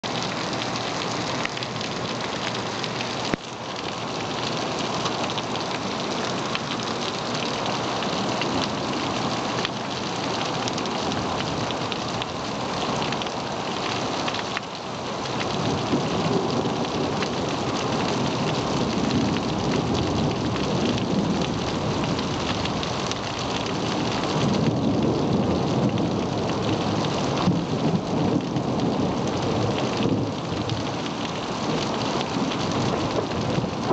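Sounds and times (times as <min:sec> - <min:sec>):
rain falling: 0:00.0 - 0:33.9
thunder rumbling: 0:15.6 - 0:33.9.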